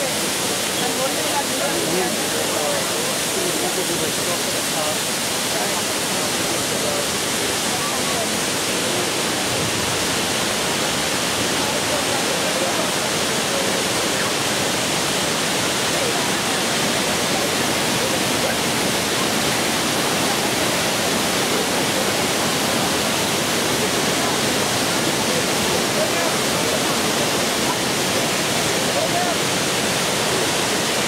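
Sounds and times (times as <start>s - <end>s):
waterfall rushing: 0.0s - 31.0s.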